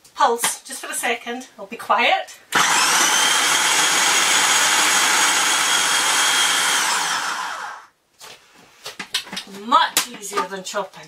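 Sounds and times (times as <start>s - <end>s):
food processor motor whine: 2.6s - 7.9s.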